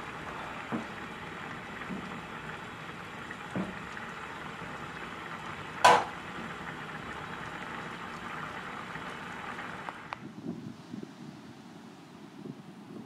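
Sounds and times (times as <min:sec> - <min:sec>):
soup simmering and bubbling: 0:00.0 - 0:10.1
sharp knock: 0:05.8 - 0:06.1.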